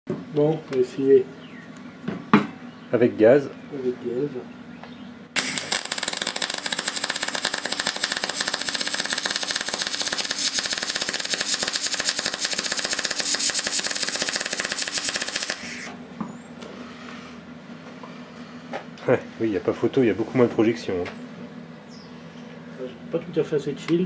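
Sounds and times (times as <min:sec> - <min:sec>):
welding arc crackling: 0:05.4 - 0:15.9.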